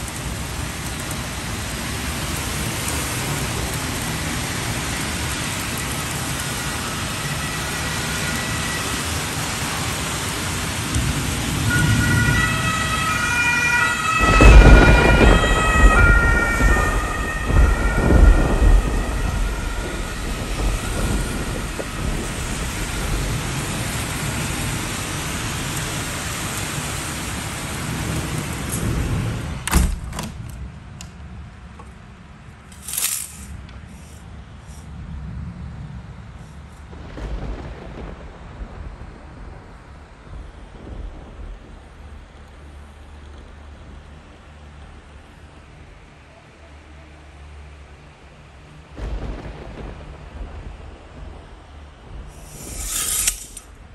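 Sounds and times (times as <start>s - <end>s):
thunder clap rumbling: 0.0s - 45.4s, 48.4s - 53.9s
heavy rain falling: 0.0s - 53.9s.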